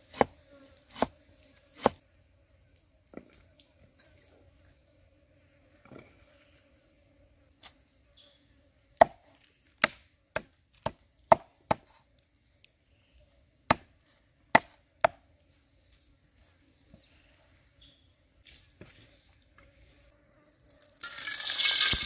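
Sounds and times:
cleaver chopping on wooden block: 0.1 - 0.3, 0.9 - 1.1, 9.0 - 11.8, 13.7 - 13.9, 14.5 - 15.2.

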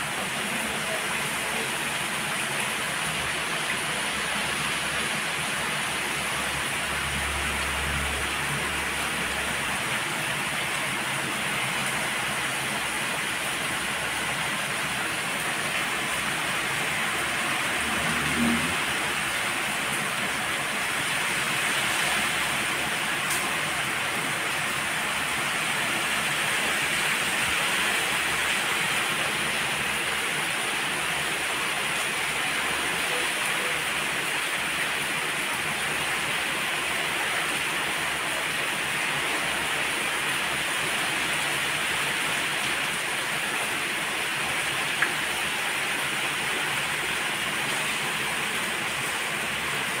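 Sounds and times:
heavy rain on palm fronds: 0.0 - 50.0.

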